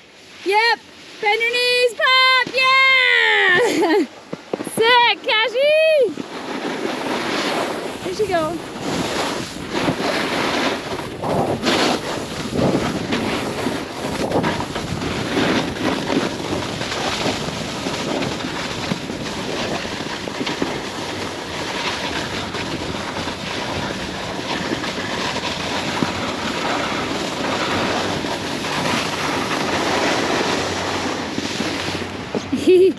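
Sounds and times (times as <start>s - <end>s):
snowboard scraping over snow: 0.0s - 32.9s
wind buffeting microphone: 7.0s - 32.5s.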